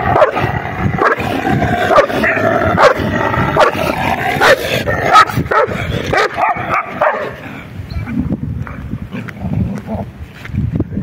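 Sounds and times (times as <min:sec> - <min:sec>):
dogs barking: 0:00.0 - 0:08.1
dogs growling: 0:00.0 - 0:08.2.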